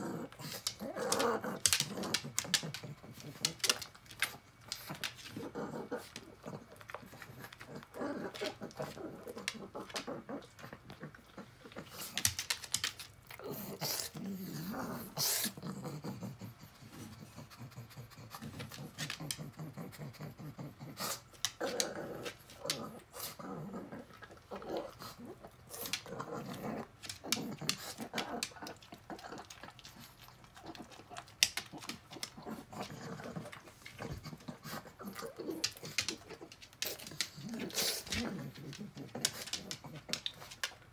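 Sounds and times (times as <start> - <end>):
dog sniffing and snuffling: 0.0 - 40.8.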